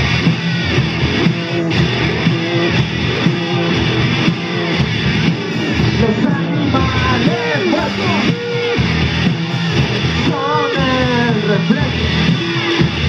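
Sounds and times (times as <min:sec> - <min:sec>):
bass guitar: 0:00.0 - 0:13.0
drums: 0:00.0 - 0:13.0
electric guitar: 0:00.0 - 0:13.0
man singing into a microphone: 0:06.0 - 0:08.3, 0:10.2 - 0:12.2.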